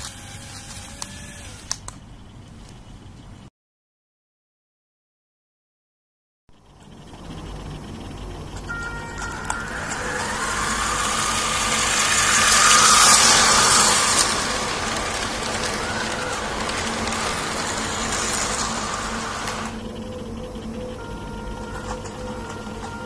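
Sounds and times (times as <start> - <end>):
toy train running on plastic track: 0.0 - 1.9, 7.6 - 20.0, 21.0 - 23.0.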